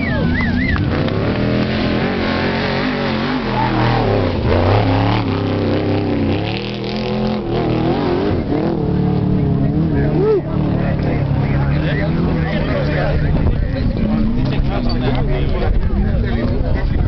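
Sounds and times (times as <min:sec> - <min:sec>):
truck engine revving passing by: 0:00.0 - 0:14.8.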